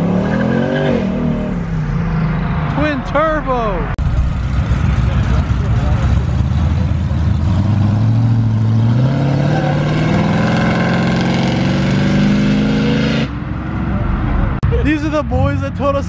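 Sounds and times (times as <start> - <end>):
pickup truck engine accelerating: 4.0 - 13.3.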